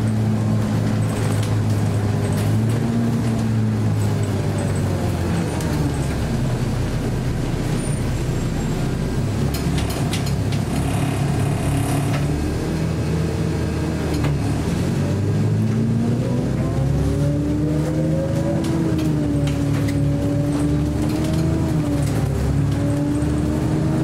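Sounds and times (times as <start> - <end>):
bus engine running: 0.0 - 24.0
road noise: 0.0 - 24.0
clicks and rattles: 9.5 - 12.4.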